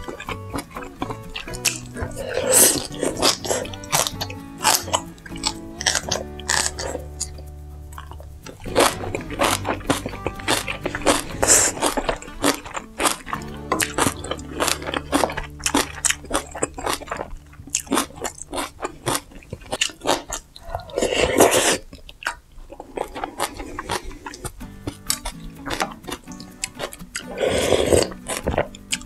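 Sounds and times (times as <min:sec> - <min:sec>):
chewing crunchy noodles: 0:00.0 - 0:29.0
slurping noodles: 0:01.6 - 0:04.8, 0:14.0 - 0:24.6, 0:27.2 - 0:28.6.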